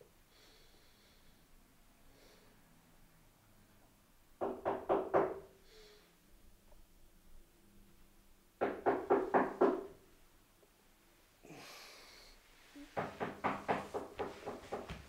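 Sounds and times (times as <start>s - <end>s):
knuckles knocking on door: 8.6s - 9.9s, 13.0s - 15.0s.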